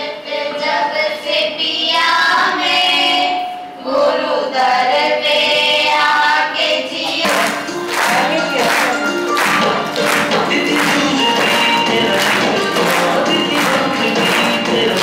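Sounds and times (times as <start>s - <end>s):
women and girls singing: 0.0s - 15.0s
music with a beat: 7.0s - 15.0s.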